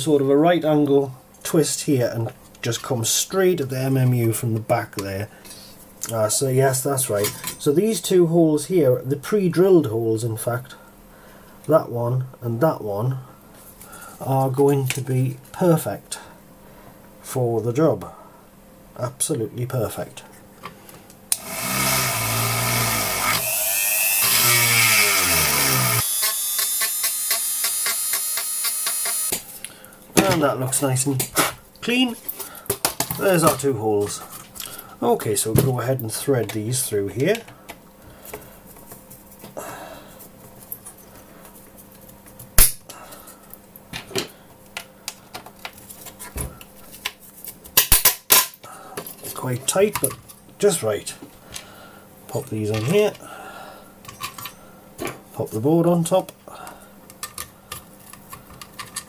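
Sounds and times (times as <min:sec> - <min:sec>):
rotary tool whining: 0:21.3 - 0:29.3
rotary tool rough grinding: 0:21.4 - 0:29.3.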